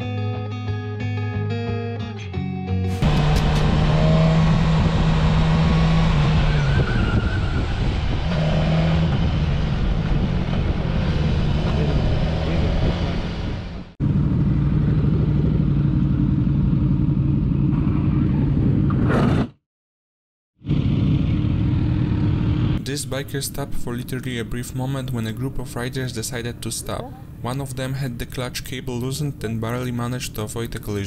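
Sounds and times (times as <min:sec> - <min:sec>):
guitar music: 0:00.0 - 0:05.0
motorcycle engine running: 0:03.0 - 0:06.5, 0:08.2 - 0:18.9, 0:20.6 - 0:22.8
wind and road noise: 0:03.0 - 0:19.6, 0:20.6 - 0:29.6.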